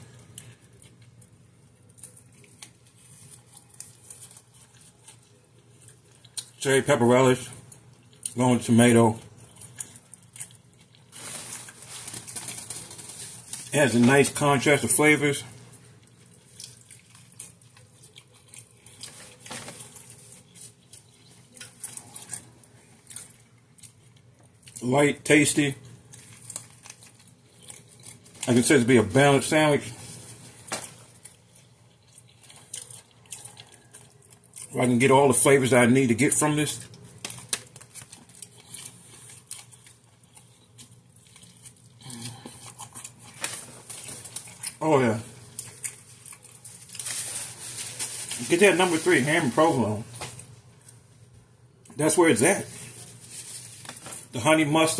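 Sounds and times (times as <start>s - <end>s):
person chewing: 0.0s - 6.6s, 7.6s - 8.4s, 9.2s - 13.8s, 15.6s - 24.8s, 25.8s - 28.6s, 30.0s - 34.8s, 36.8s - 48.4s.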